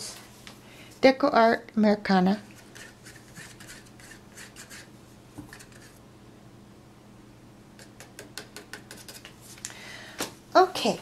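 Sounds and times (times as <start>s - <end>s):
low steady hum: 0.0s - 11.0s
plastic cups clicking on table: 7.8s - 9.3s.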